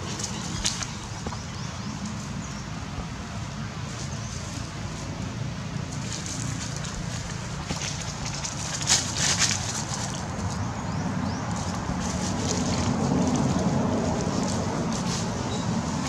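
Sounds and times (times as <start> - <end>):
wind rumble on microphone: 0.0 - 16.0
dry leaves crackling and rustling: 3.8 - 16.0.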